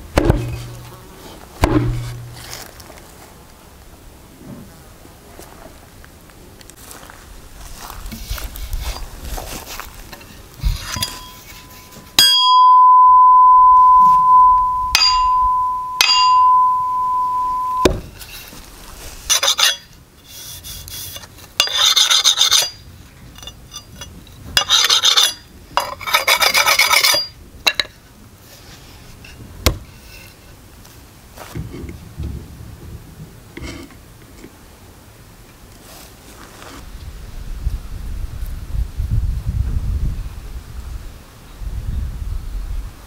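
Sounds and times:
stone sharpening axe blade: 10.8s - 12.5s, 14.9s - 17.8s, 19.3s - 22.8s, 23.4s - 27.4s
loud ringing tone: 11.1s - 17.9s.

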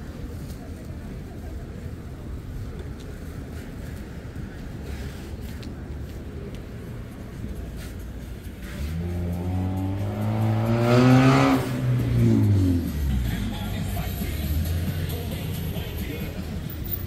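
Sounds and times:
street noise: 0.0s - 17.0s
vehicle engine revving up: 8.6s - 15.2s.

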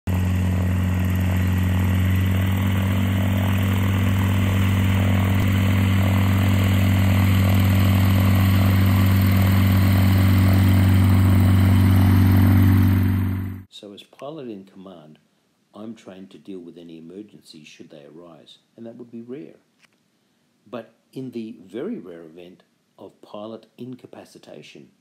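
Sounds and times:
light aircraft engine and propeller: 0.1s - 13.7s.

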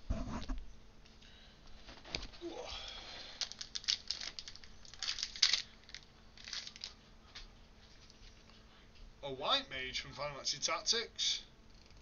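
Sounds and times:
foil wrapper crinkling: 3.2s - 7.0s.

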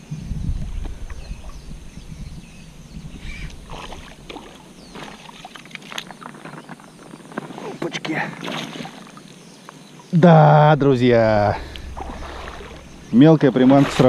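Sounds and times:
low rumble on microphone: 0.0s - 5.3s, 10.3s - 14.0s.

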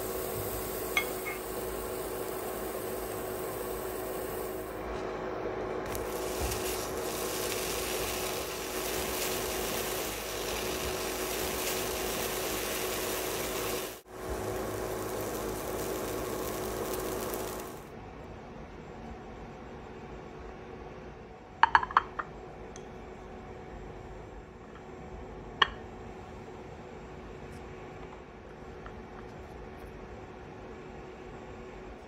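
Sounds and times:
pancakes hissing on a griddle: 0.0s - 4.8s, 5.9s - 17.8s
stove hum: 0.0s - 21.0s.

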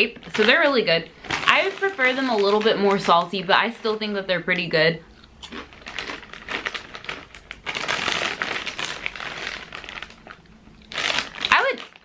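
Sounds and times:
foil bag crinkling: 0.0s - 4.2s, 5.5s - 12.0s
chewing crunchy snacks: 5.1s - 12.0s.

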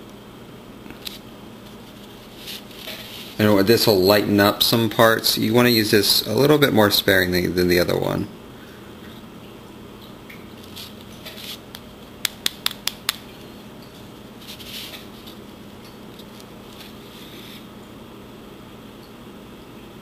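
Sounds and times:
soft scratchy brushing: 1.1s - 3.6s, 10.7s - 11.7s, 14.4s - 15.5s, 16.2s - 17.7s.

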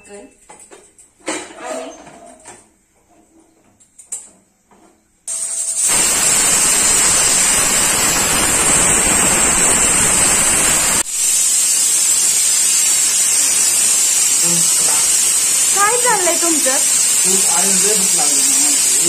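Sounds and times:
pressure cooker whistling: 5.3s - 19.0s.

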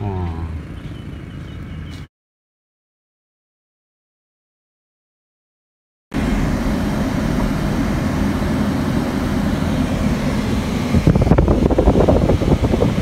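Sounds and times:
car engine and road noise: 0.0s - 2.1s, 6.1s - 13.0s.

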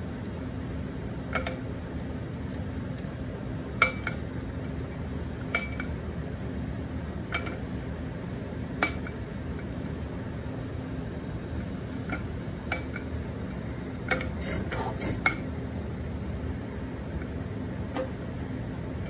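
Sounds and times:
machine humming: 13.6s - 19.0s.

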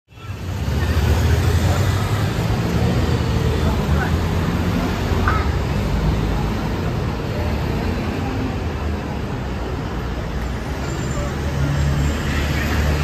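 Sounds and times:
cars and bus passing: 0.1s - 13.0s.

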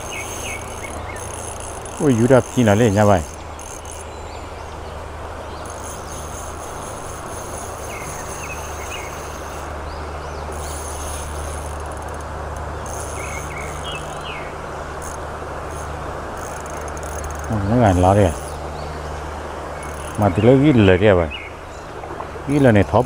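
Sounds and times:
bird chirps: 0.0s - 11.8s, 12.8s - 15.2s
insects trilling: 0.0s - 23.0s
stream water rushing: 0.0s - 23.0s.

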